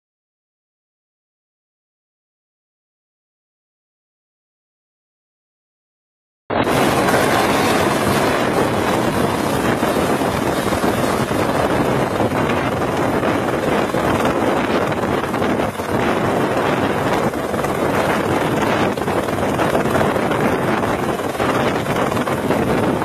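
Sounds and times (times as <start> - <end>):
helicopter hovering: 6.5 - 23.0
wind buffeting microphone: 6.5 - 23.0.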